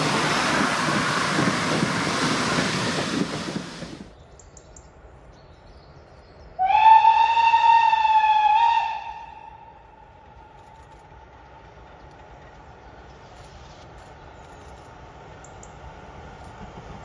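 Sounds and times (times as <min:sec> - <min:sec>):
train rumbling past: 0:00.0 - 0:17.0
steam locomotive whistle: 0:06.6 - 0:09.9.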